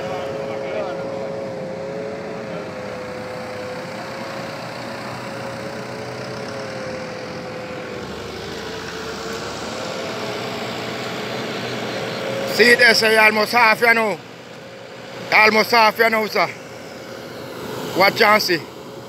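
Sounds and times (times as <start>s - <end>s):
engine humming: 0.0s - 19.0s.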